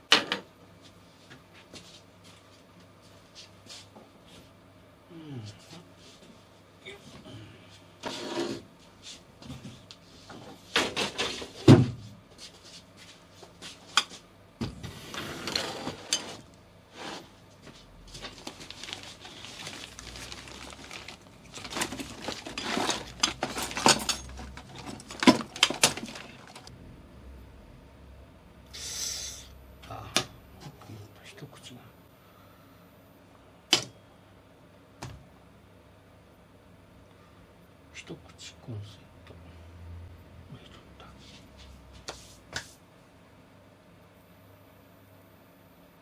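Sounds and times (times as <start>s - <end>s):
plastic packaging rustling: 18.0s - 26.7s.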